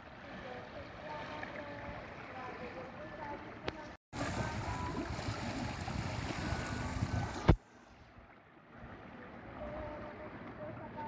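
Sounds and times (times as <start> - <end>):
water washing against boat: 0.0 - 11.0
wind: 0.0 - 11.0.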